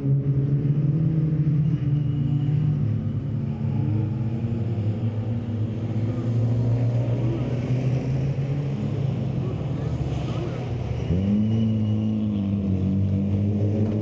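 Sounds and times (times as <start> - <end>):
racing car engines revving: 0.0 - 14.0.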